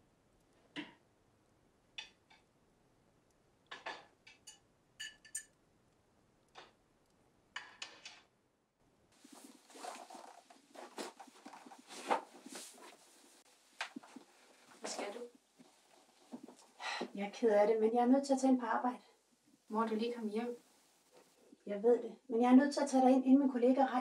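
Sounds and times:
cutlery and glassware clinking: 3.8s - 5.6s
bag rustling: 9.2s - 16.8s.

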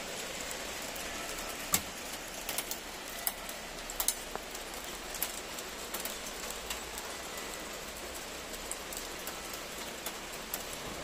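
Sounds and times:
hailstones clicking: 0.0s - 11.0s
rain hissing on tiles: 0.0s - 11.0s.

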